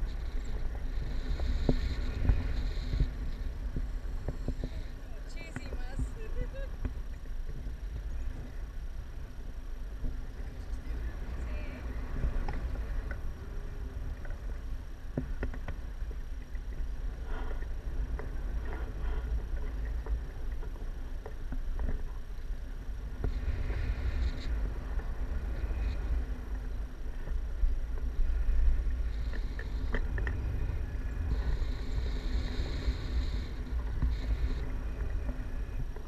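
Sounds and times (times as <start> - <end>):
wind rushing over microphone: 0.0 - 36.0
faint clicks: 25.6 - 36.0.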